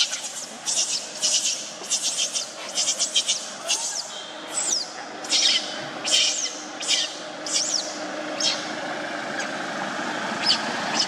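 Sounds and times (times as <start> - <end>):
infant monkey crying: 0.0 - 8.7.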